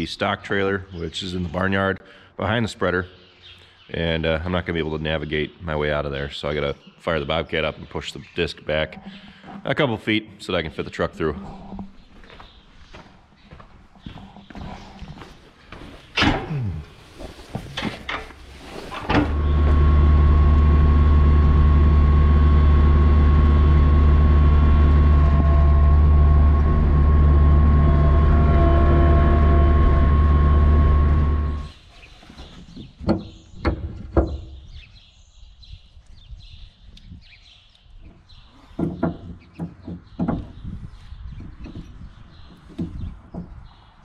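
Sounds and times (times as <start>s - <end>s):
loader engine running with whine: 18.9s - 31.8s.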